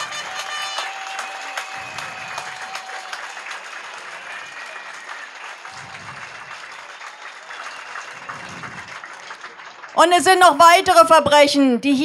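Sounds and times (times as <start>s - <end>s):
crowd applauding: 0.0s - 11.0s.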